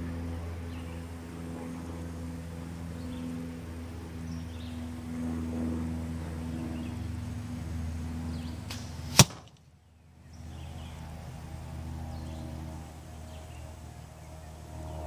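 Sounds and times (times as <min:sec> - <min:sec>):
steady low hum: 0:00.0 - 0:15.0
arrow striking foam target: 0:08.7 - 0:09.6.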